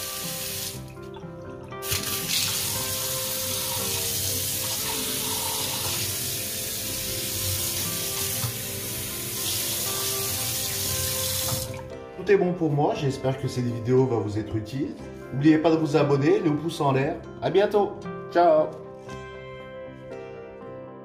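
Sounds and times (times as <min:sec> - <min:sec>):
tap water running into steel sink: 0:00.0 - 0:11.9.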